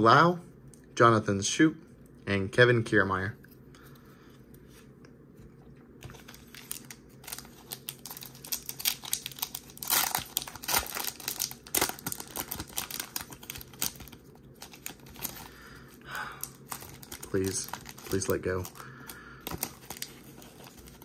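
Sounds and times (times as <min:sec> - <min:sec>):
foil wrapper crinkling and tearing: 0:06.0 - 0:21.0.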